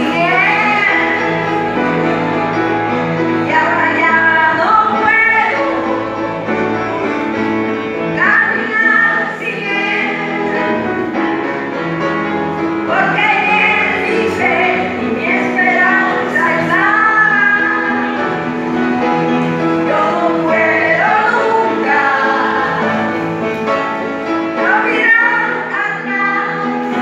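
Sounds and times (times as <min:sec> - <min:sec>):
sustained piano accompaniment: 0:00.0 - 0:27.0
elderly woman singing hymn: 0:08.2 - 0:10.9, 0:12.9 - 0:18.0, 0:19.8 - 0:23.1.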